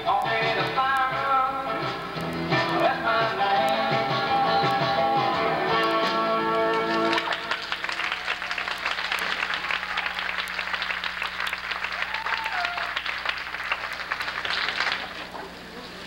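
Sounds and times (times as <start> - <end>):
music: 0.0 - 7.9
audience applauding: 5.8 - 15.5.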